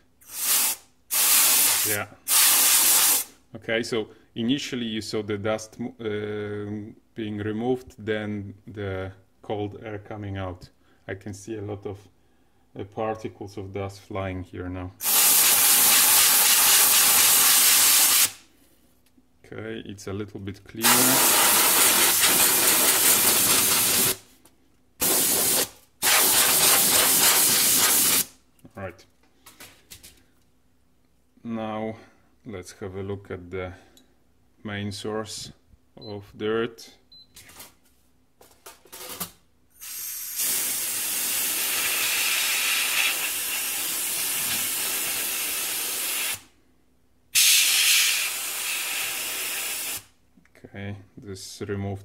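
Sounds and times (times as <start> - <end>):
compressed air spraying: 0.2 - 3.3, 15.0 - 18.4, 20.8 - 24.2, 25.0 - 28.3, 39.8 - 46.5, 47.4 - 50.1.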